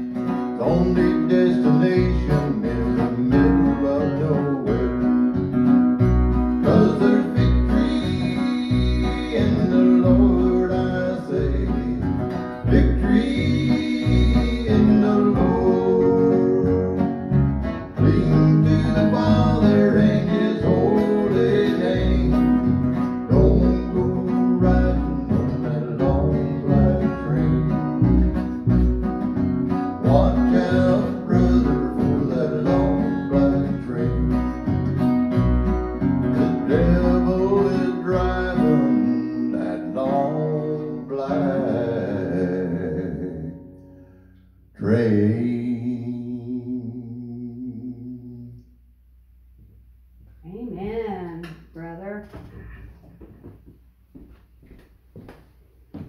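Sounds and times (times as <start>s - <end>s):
upright bass plucked: 0.0s - 43.8s
acoustic guitar strumming: 0.0s - 46.4s.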